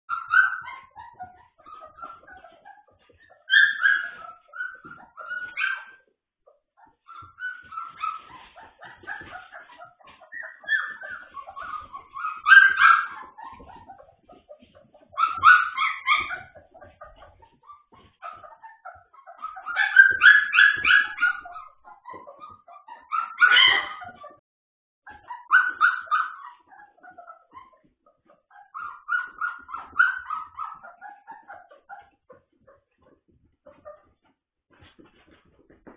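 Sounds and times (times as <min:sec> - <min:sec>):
puppies yipping and whimpering: 0:00.1 - 0:24.4, 0:25.1 - 0:35.9.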